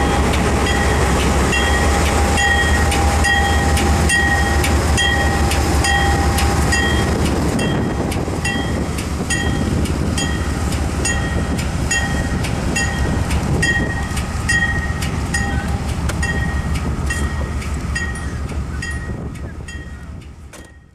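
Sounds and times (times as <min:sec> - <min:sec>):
diesel locomotive moving away: 0:00.0 - 0:20.9
passenger train rumbling past: 0:00.0 - 0:20.9
bell ringing: 0:11.1 - 0:20.0.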